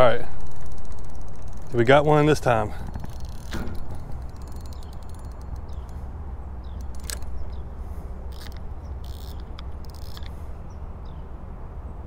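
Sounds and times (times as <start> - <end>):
fishing reel clicks: 0.0 - 6.0, 6.6 - 7.6, 8.3 - 10.4
low steady rumble: 0.0 - 12.0.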